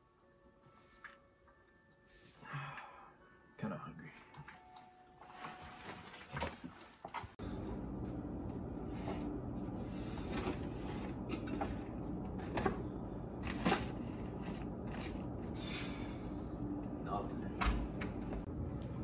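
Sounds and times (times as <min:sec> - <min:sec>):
person sighing: 0:02.3 - 0:03.2
steady low hum: 0:07.5 - 0:19.0.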